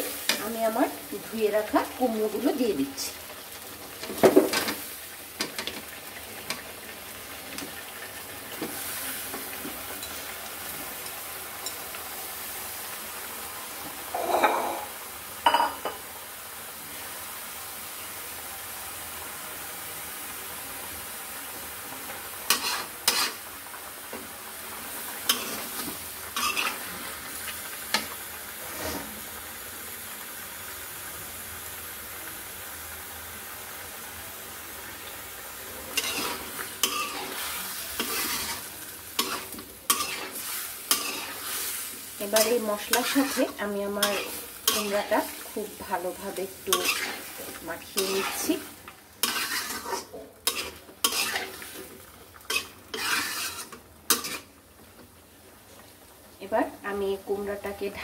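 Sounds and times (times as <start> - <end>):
food sizzling in hot oil: 0.0 - 58.0
metal spatula scraping a wok: 22.5 - 23.4, 25.3 - 26.9, 28.6 - 29.2, 35.9 - 45.5, 46.6 - 48.6, 49.2 - 54.5.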